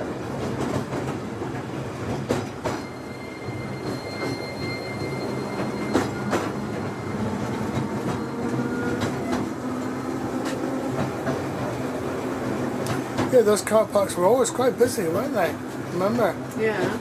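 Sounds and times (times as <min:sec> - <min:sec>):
tram hum and rumble: 0:00.0 - 0:17.0
high wheel squeal: 0:02.6 - 0:09.9.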